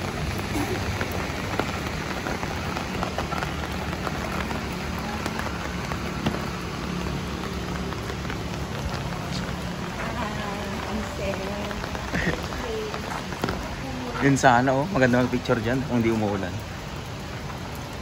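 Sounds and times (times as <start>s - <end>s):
rain pattering on surfaces: 0.0s - 18.0s.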